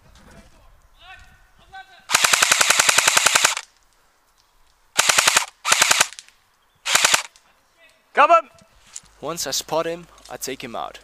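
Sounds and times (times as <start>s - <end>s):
airsoft gun firing full-auto: 2.1s - 3.6s, 5.0s - 6.2s, 6.9s - 7.3s.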